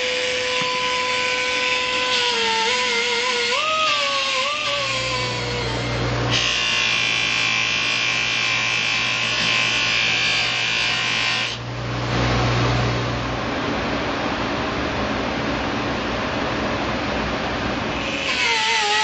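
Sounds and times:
harsh hissing tool noise: 0.0 - 10.6, 17.9 - 19.0
power tool motor hum: 0.0 - 11.6.

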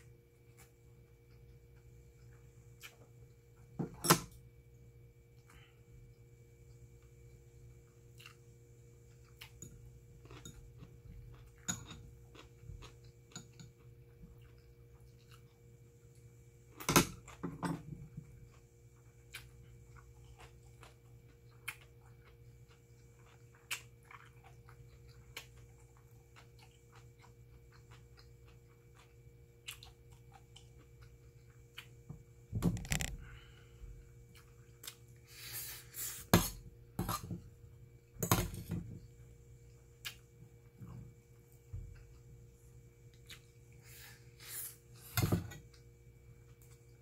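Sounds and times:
faint steady hum: 0.0 - 47.0
chewing rice: 5.3 - 32.1.

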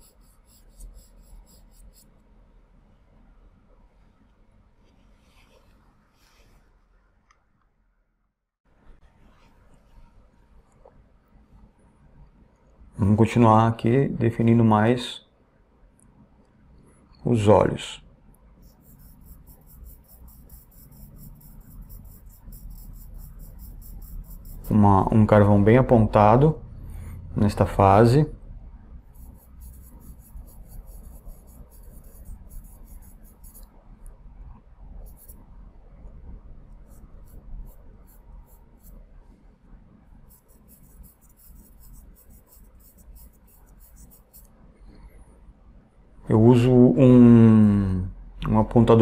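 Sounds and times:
pencil scratching on paper: 0.0 - 2.2, 18.6 - 25.1, 29.1 - 33.7, 35.0 - 35.4, 36.8 - 39.1, 40.2 - 44.5
low room rumble: 0.0 - 49.0.

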